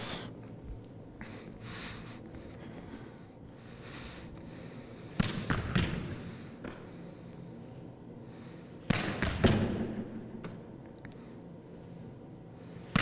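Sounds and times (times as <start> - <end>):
volleyball slapping: 5.1 - 6.8, 8.8 - 10.6.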